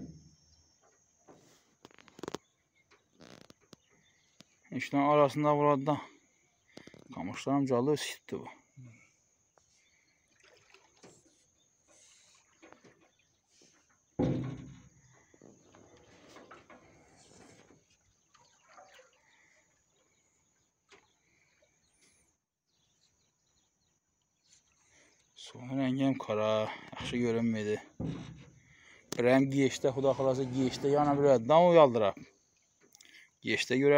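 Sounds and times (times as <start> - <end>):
faint knocks and rustles: 0.8 - 4.6, 10.6 - 19.0, 26.8 - 31.4
loud thump: 14.2 - 14.8, 28.0 - 28.5
bird chirp: 14.8 - 26.2.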